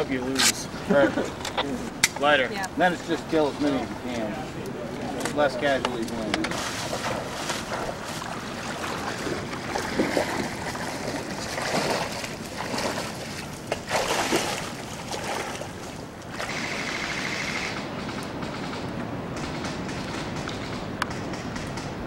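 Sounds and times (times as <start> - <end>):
boots splashing through creek: 6.5 - 16.6.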